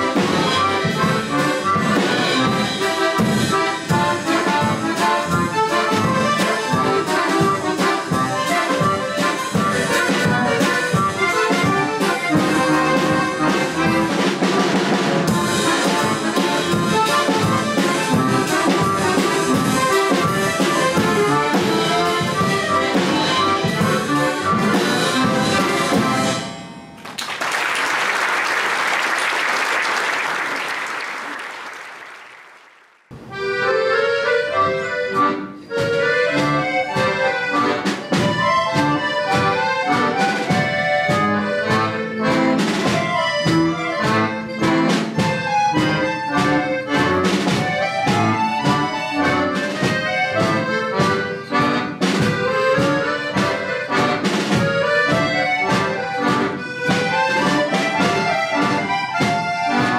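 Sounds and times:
accordion orchestra playing: 0.0 - 59.9
audience applause: 27.0 - 33.1.

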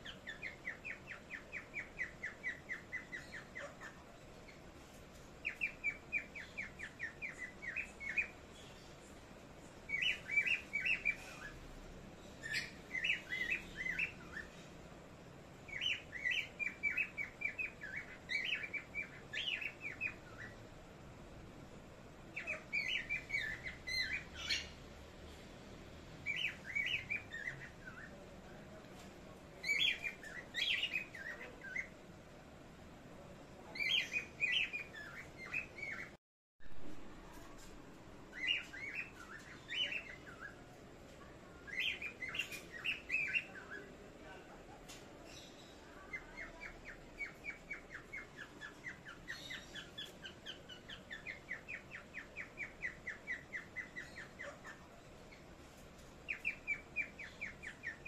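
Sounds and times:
parrots chirping: 0.0 - 25.0, 25.7 - 28.4, 29.5 - 32.2, 33.5 - 36.2, 38.1 - 58.0.

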